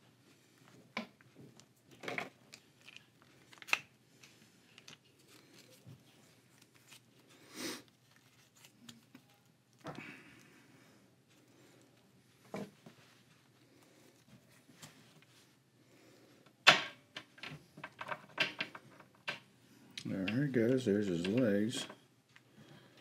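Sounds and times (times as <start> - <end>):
plastic parts clicking and scraping: 1.9 - 5.9.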